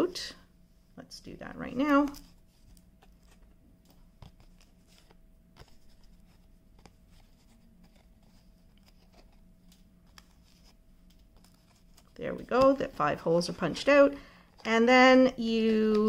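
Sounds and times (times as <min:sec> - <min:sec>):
paper rustling: 0:01.8 - 0:14.7.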